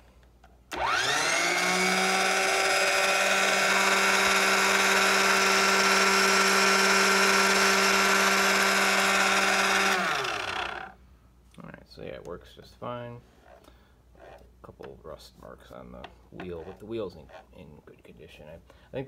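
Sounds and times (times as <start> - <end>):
sharpener motor whining: 0.7 - 11.0.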